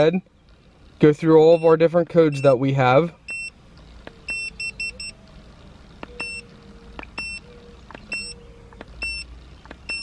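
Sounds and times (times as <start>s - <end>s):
short high beeps: 4.3s - 5.2s, 6.2s - 6.4s, 7.2s - 7.5s, 8.1s - 8.4s, 9.0s - 9.3s.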